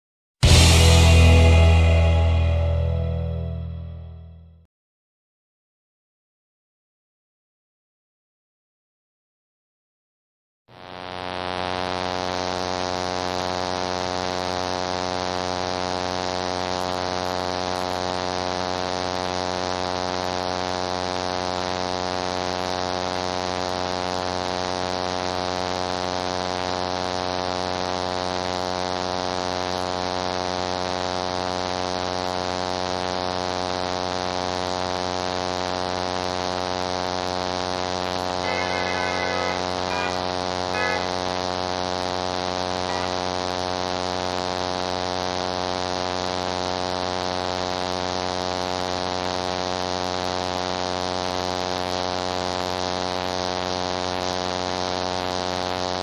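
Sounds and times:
transformer humming: 38.4 - 41.7, 42.9 - 43.6.

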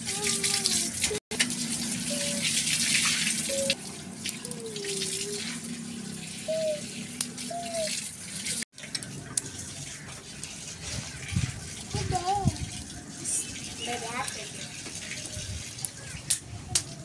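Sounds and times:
wood fire hissing and crackling: 7.0 - 17.0.

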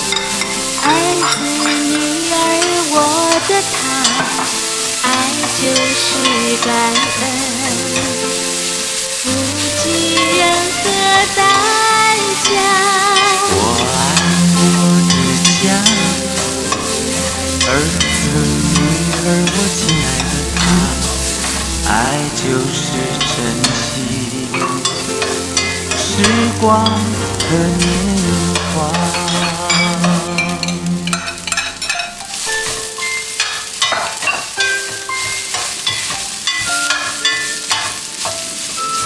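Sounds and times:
background music with held notes: 0.0 - 39.0
frying sizzle: 0.0 - 39.0
metal spatula scraping pan: 9.6 - 39.0.

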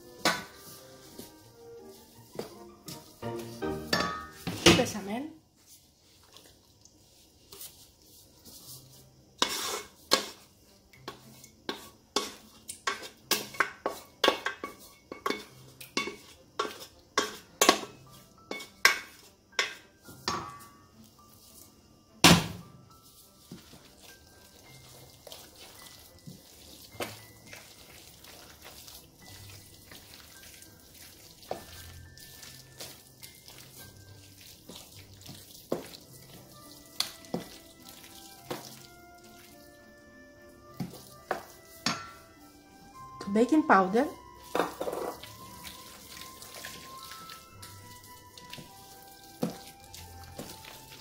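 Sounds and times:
stirring thick mixture in bowl: 0.0 - 19.8, 22.9 - 39.8, 40.6 - 42.2, 44.1 - 51.0
wooden spoon knocking metal pot: 3.8 - 5.1, 18.5 - 20.7, 40.8 - 42.2, 44.5 - 45.3.

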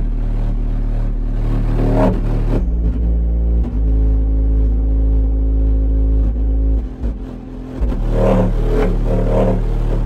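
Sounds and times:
pulsing bass beat: 0.0 - 10.0
subwoofer playing deep bass: 0.0 - 10.0.

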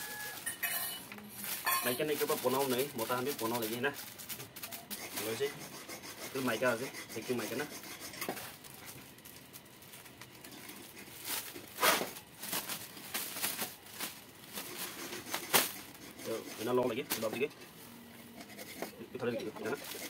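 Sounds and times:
plastic bag crinkling: 0.0 - 5.5, 8.4 - 16.0.

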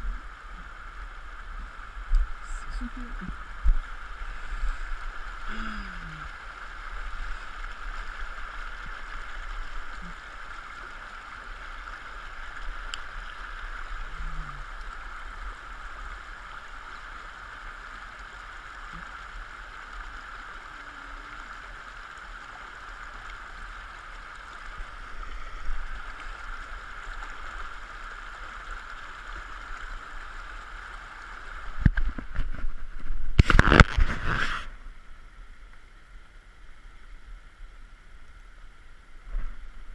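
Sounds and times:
stream running over stones: 0.0 - 39.9
rubbing and bumping on microphone: 31.8 - 34.8.

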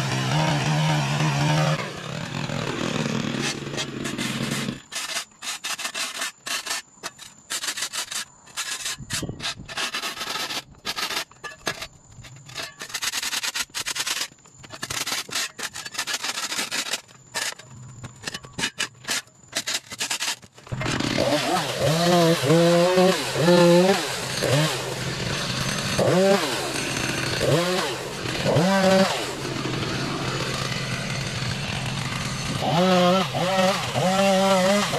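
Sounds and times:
chainsaw running and revving: 0.0 - 4.9, 20.7 - 34.9
shovel scraping dirt off concrete: 3.0 - 34.9.

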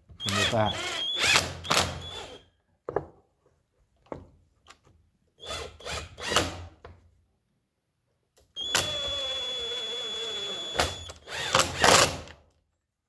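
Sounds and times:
drill motor running: 8.7 - 11.8.

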